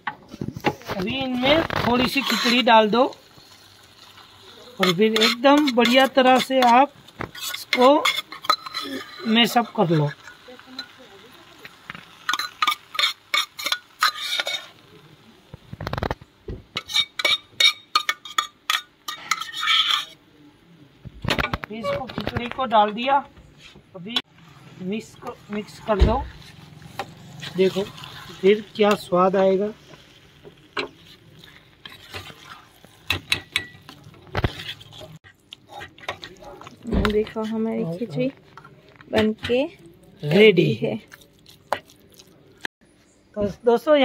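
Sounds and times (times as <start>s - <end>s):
metal spoon scraping a pot: 1.1s - 11.0s, 12.3s - 14.8s, 16.8s - 20.2s, 24.2s - 29.1s, 30.8s - 37.6s.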